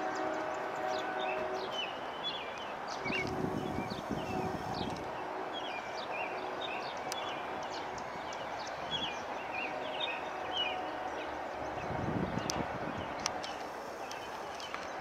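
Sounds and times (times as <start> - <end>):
outdoor background hiss: 0.0 - 15.0
small birds chirping: 0.2 - 15.0.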